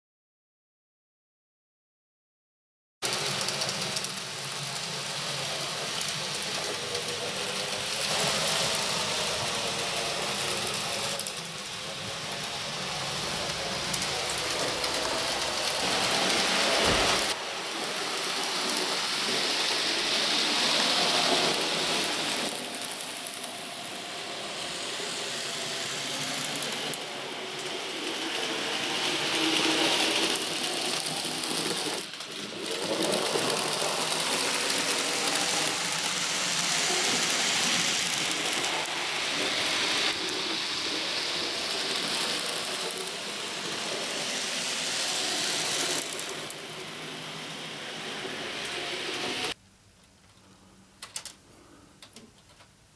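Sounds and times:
model train motor whirr: 0:03.0 - 0:49.6
rail clatter: 0:03.1 - 0:23.4.

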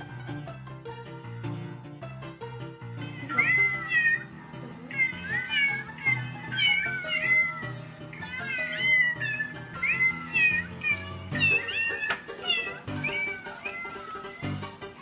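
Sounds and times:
cat meow song over backing tune: 0:03.0 - 0:15.0.

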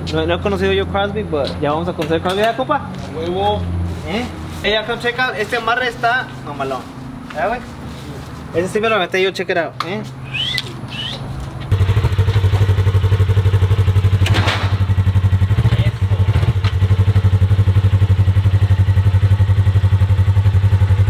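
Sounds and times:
vehicle engine pulsing: 0:10.1 - 0:21.0.

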